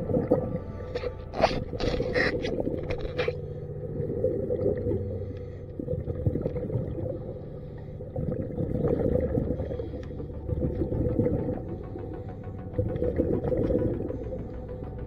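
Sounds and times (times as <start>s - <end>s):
underwater crackling and clicks: 0.0s - 15.0s
underwater mechanical hum: 0.0s - 15.0s.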